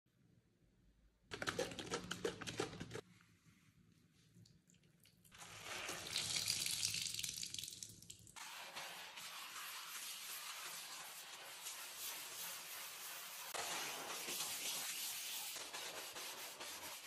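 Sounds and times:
sponge scrubbing countertop: 0:08.4 - 0:17.0.

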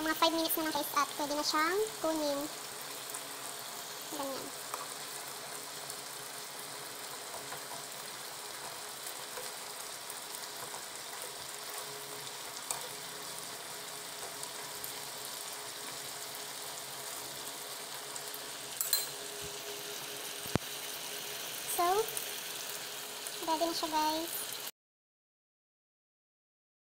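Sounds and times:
chicken sizzling in a pan: 0:00.0 - 0:24.7
metal tongs clicking on pan: 0:12.6 - 0:13.0, 0:18.8 - 0:19.2.

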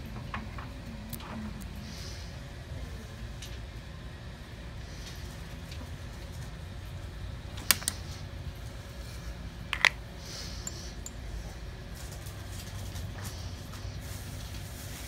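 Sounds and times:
steady low hum: 0:00.0 - 0:15.0
nail brush clicking on plastic jars: 0:09.8 - 0:10.0.

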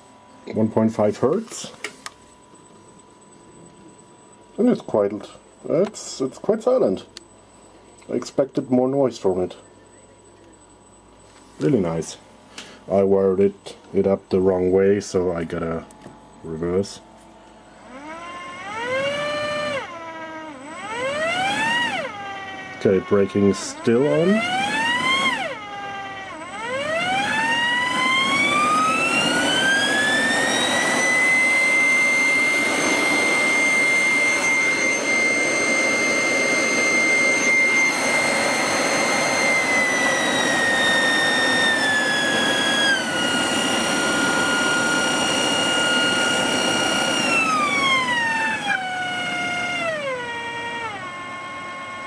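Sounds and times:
blower impeller screaming: 0:17.9 - 0:52.0.

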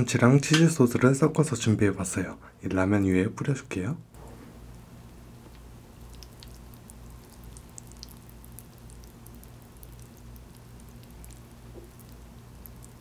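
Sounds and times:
low steady hum: 0:00.0 - 0:13.0
wet clicks of sauce spooned: 0:05.4 - 0:13.0.

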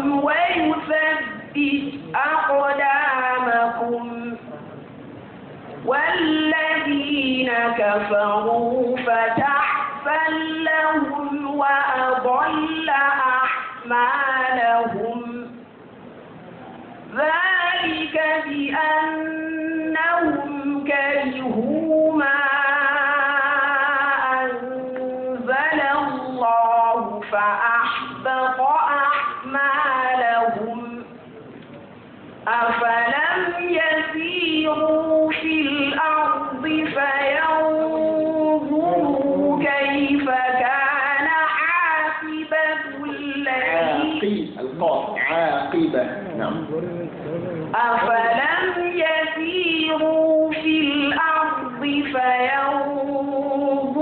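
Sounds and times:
person chanting melodic recitation: 0:06.0 - 0:15.6, 0:32.6 - 0:54.0.

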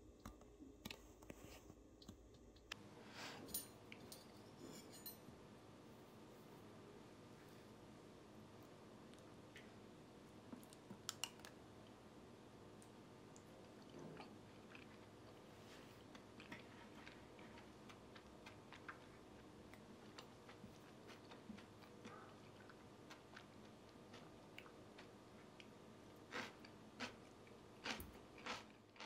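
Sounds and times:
soft chewing: 0:07.3 - 0:12.0, 0:12.8 - 0:29.0.

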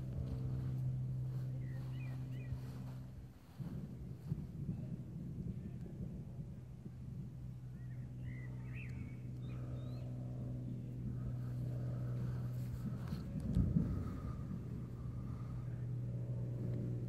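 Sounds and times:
vehicle engine running: 0:00.0 - 0:17.0
birds chirping: 0:00.3 - 0:03.1, 0:07.6 - 0:12.5.

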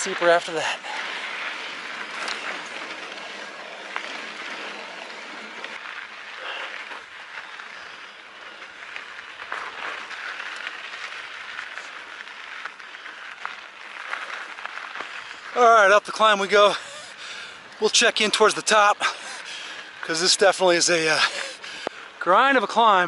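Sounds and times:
bike tyres crunching over dirt: 0:00.0 - 0:23.0.

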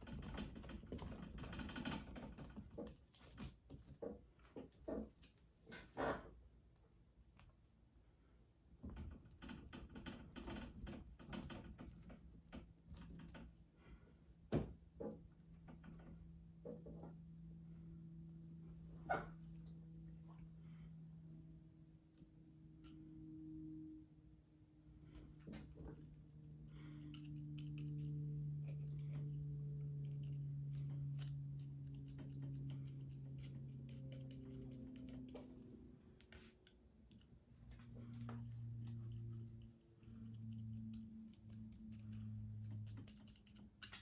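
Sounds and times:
low hum: 0:11.8 - 0:44.0.

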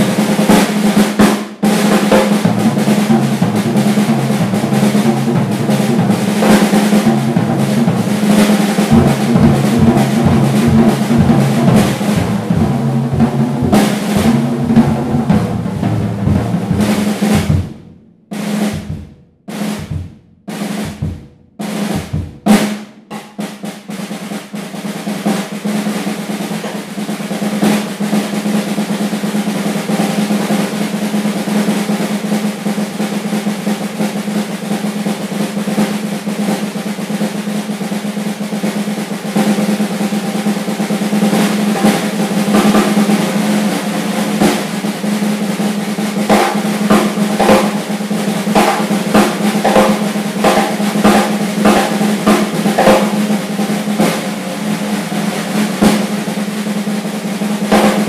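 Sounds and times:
bass drum: 0:00.0 - 0:23.4, 0:41.3 - 0:55.1
drum kit played hard: 0:00.0 - 0:58.0
snare drum roll: 0:00.0 - 0:58.0.

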